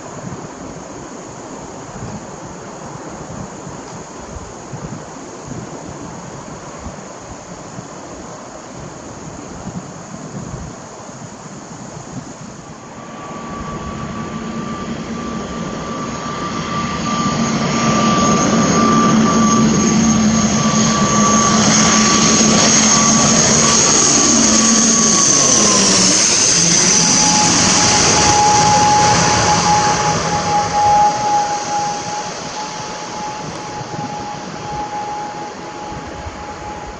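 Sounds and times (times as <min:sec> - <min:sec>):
turboprop plane flying overhead: 0:09.2 - 0:36.9.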